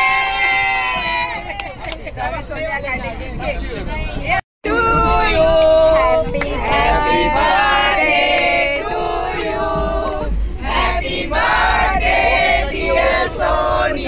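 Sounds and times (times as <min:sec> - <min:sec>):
group singing in unison: 0:04.7 - 0:14.0.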